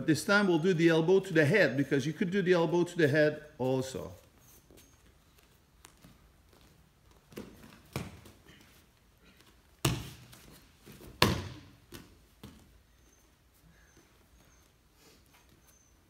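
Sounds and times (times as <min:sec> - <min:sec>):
feet stamping and slapping on mats: 0:04.7 - 0:12.9.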